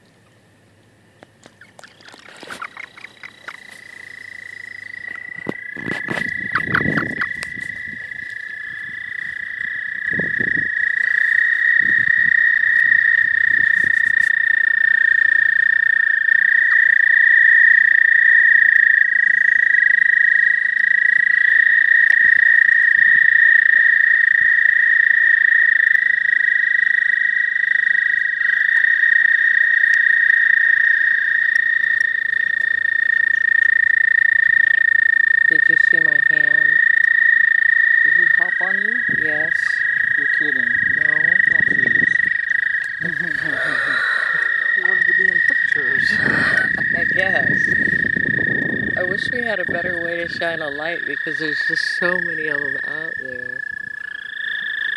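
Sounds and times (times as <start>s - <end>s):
toads trilling: 1.2s - 54.9s.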